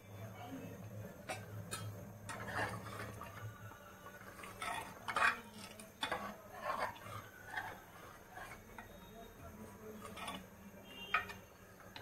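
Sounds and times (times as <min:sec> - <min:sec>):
metal utensil scraping a pot: 0:01.2 - 0:03.5, 0:04.1 - 0:09.1, 0:09.9 - 0:12.0.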